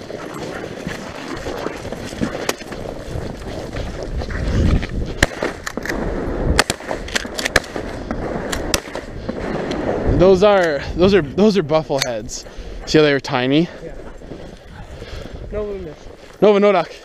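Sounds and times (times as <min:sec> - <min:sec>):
footsteps crunching through snow: 0:00.0 - 0:05.3, 0:12.4 - 0:17.0
shotgun shots: 0:05.2 - 0:10.0.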